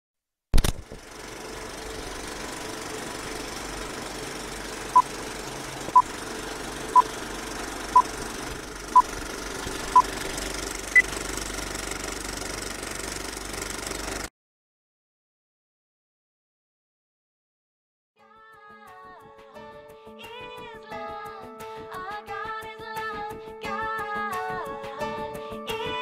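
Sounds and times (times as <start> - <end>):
film projector clatter and hiss: 0.6 - 14.3.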